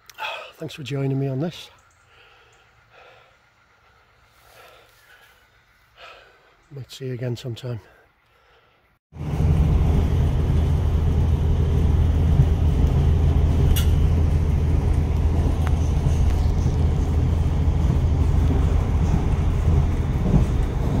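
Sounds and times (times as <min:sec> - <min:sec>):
vehicle rumble from inside: 0:09.2 - 0:21.0.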